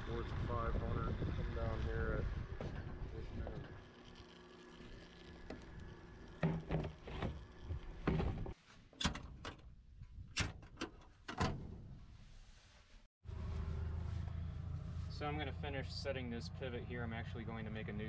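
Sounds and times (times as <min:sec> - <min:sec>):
knocks and clunks of handling: 0:08.0 - 0:09.7.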